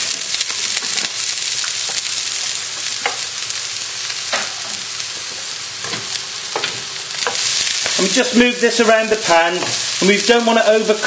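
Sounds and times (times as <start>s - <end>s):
vegetables sizzling in a frying pan: 0.0s - 11.0s.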